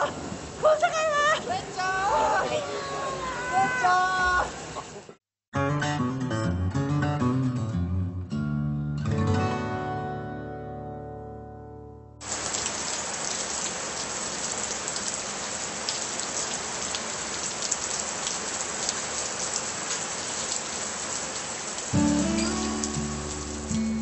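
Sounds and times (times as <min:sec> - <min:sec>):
steady rain falling: 0:00.0 - 0:05.2, 0:12.2 - 0:24.0
strummed acoustic guitar music: 0:05.6 - 0:12.1, 0:22.0 - 0:24.0.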